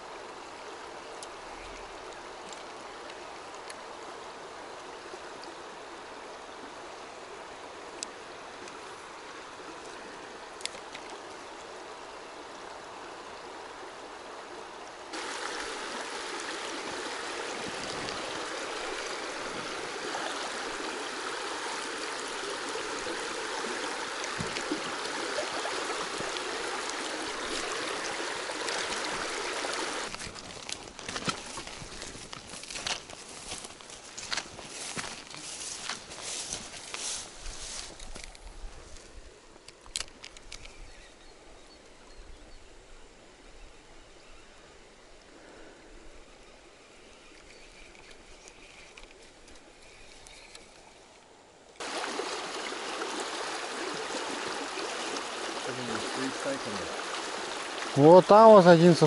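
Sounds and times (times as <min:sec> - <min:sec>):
river rushing over stones: 0:00.0 - 0:37.2, 0:51.8 - 0:59.0.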